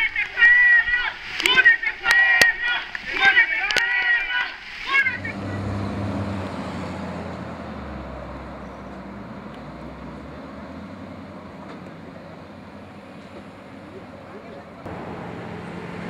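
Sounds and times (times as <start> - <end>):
vehicle engine and road noise: 4.9 - 16.0.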